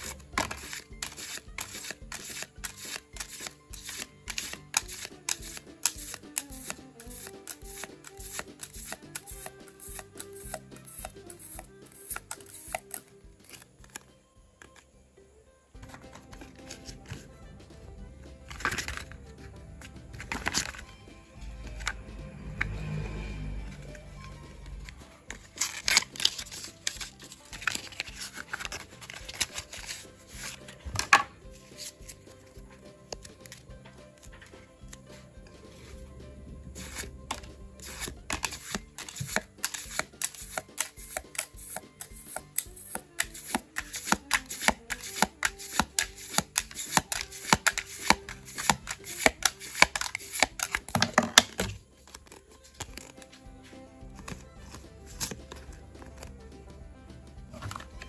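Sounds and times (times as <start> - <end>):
foil wrapper tearing: 0.0 - 14.0, 25.5 - 30.6
trading cards being flipped: 0.0 - 14.9, 15.8 - 36.1, 36.7 - 56.5, 57.5 - 58.0
foil pack crinkling: 25.5 - 30.6.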